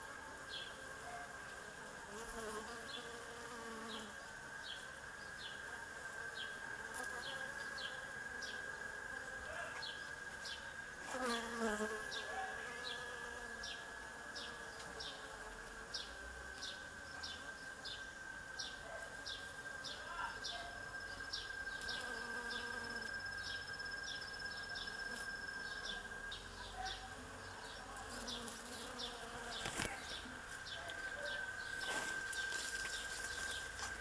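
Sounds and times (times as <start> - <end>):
bees buzzing: 1.6 - 4.2, 10.3 - 18.0, 20.9 - 34.0
steady high whine: 17.6 - 28.9, 29.5 - 34.0.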